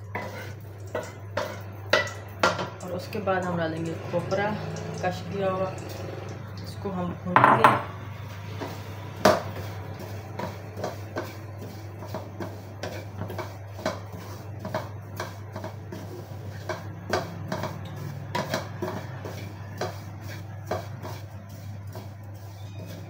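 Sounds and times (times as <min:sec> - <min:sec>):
wooden spatula knocking on metal pan: 0:07.4 - 0:07.9.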